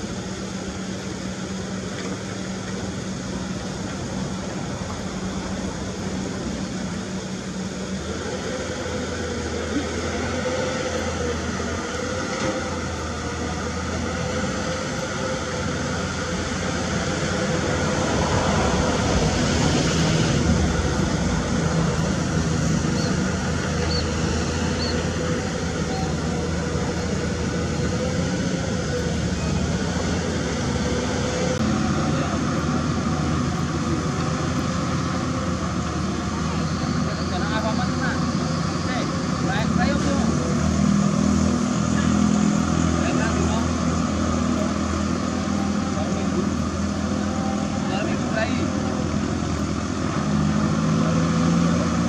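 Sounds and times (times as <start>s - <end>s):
excavator engine and hydraulics: 0.0s - 52.0s.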